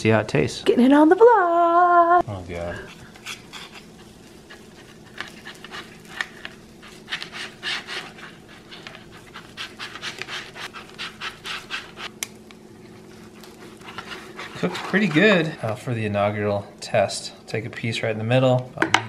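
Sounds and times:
dog panting: 13.1 - 15.6.

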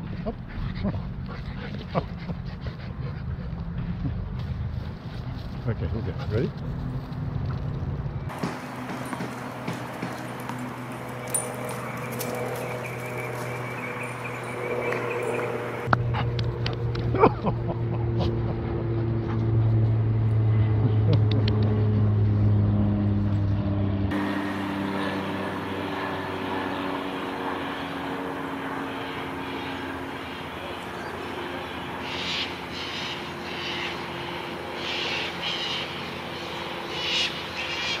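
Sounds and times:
low engine drone: 0.0 - 38.0.

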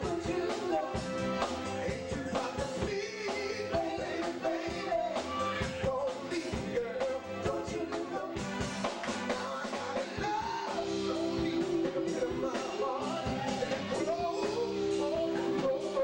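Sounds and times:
drum kit: 0.0 - 16.0
electric guitars: 0.0 - 16.0
people singing into microphones: 0.0 - 16.0.

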